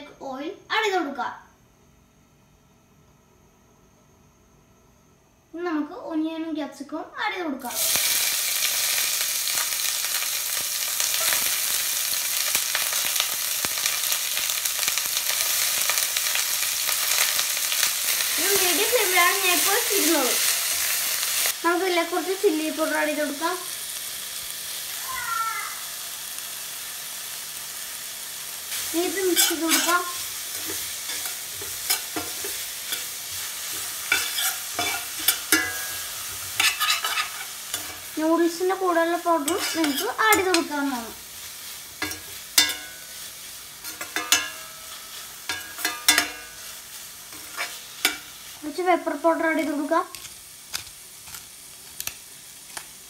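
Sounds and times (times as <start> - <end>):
vegetables sizzling in hot oil: 7.6 - 53.0
spatula scraping a pan: 29.1 - 38.1, 39.4 - 40.7, 42.0 - 48.4.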